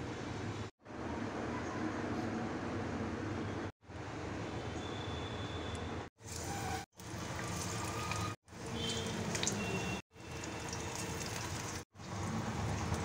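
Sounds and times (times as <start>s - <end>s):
hot oil sizzling: 6.2s - 13.0s.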